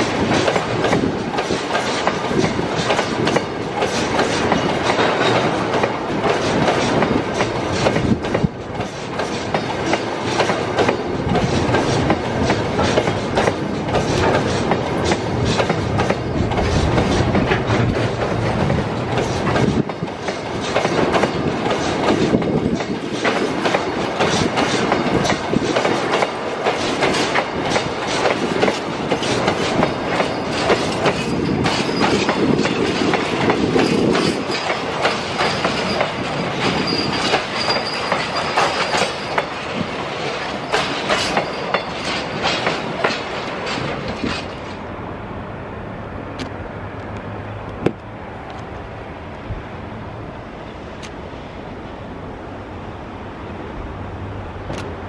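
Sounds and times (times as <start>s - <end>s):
train wheels clattering over rail joints: 0.0s - 44.8s, 54.6s - 55.0s
high wheel squeal: 29.8s - 32.4s, 35.4s - 39.6s, 40.6s - 42.2s.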